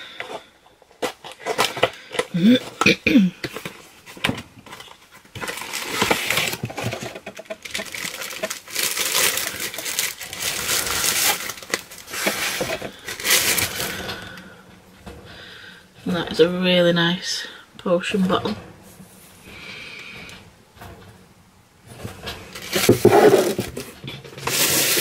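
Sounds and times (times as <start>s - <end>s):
packaging crinkling: 0.9s - 14.4s, 22.5s - 25.0s.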